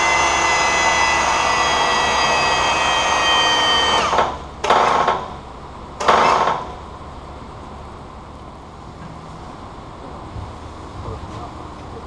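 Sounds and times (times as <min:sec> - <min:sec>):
low steady hum: 0:06.7 - 0:12.0.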